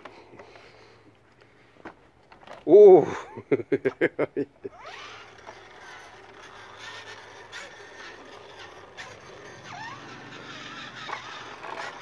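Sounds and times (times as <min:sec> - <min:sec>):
toy electric motor whirring: 0:04.7 - 0:12.0.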